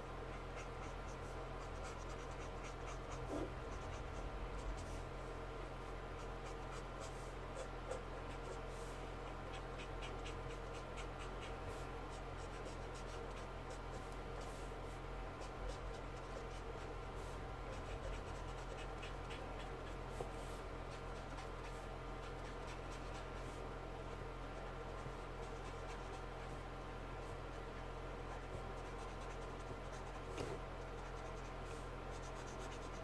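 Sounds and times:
low steady hum: 0:00.0 - 0:33.0
marker scratching on paper: 0:00.3 - 0:05.0, 0:15.4 - 0:23.6, 0:24.6 - 0:26.6, 0:27.8 - 0:33.0.

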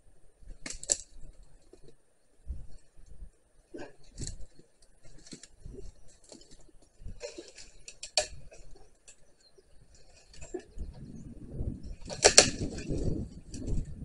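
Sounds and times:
twigs snapping and rustling: 0:00.5 - 0:02.0, 0:03.9 - 0:10.8, 0:11.8 - 0:14.0.

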